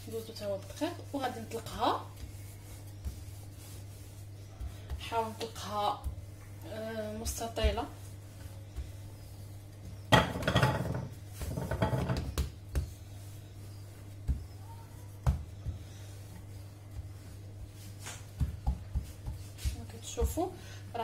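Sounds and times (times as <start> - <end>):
rolling pin rolling dough: 0.0 - 21.0
rolling pin knocking counter: 10.1 - 13.0.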